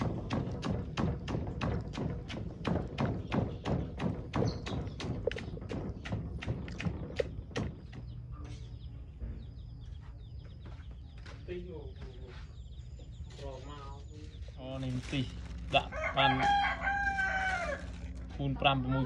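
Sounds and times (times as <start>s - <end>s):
pestle pounding in mortar: 0.0s - 8.1s.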